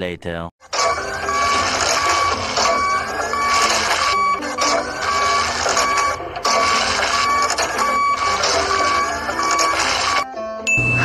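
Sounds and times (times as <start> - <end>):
excavator mechanical whirring: 0.6 - 11.0
short rising whines: 0.7 - 11.0
high tone: 0.8 - 11.0.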